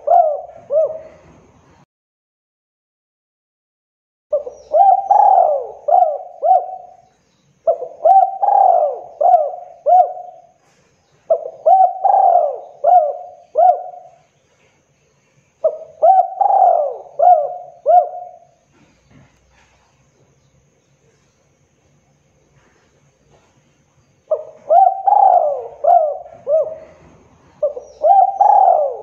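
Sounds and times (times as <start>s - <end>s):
dove cooing: 0.0s - 1.6s, 4.3s - 14.3s, 15.6s - 18.9s, 24.3s - 29.0s.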